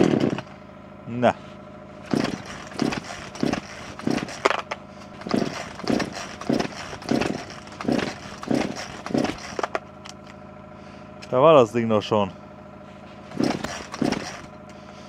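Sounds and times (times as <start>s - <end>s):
chainsaw recoil starter pulls: 0.0s - 0.5s, 2.1s - 10.4s, 13.3s - 14.9s.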